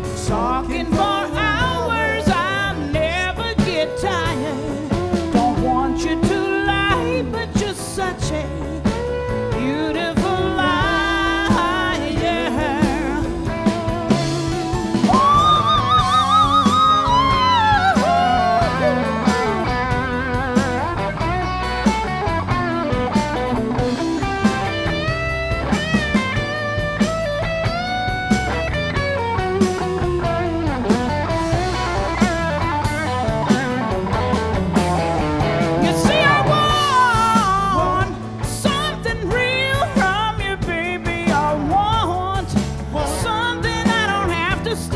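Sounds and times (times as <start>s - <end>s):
woman singing: 0.0s - 21.0s, 35.6s - 44.9s
live rock band: 0.0s - 44.9s.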